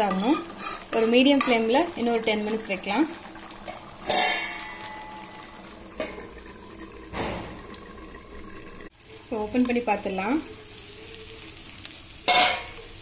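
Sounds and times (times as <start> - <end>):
gravy bubbling: 0.8 - 9.3
metal lid clanging on pot: 4.0 - 5.4, 12.3 - 12.8.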